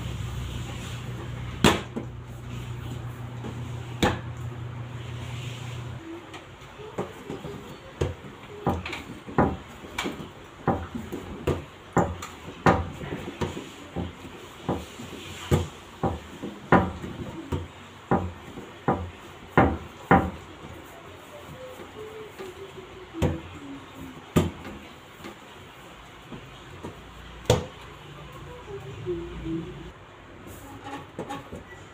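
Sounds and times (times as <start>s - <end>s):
dough thumping on steel table: 1.6s - 2.1s, 3.4s - 4.3s, 6.9s - 20.8s.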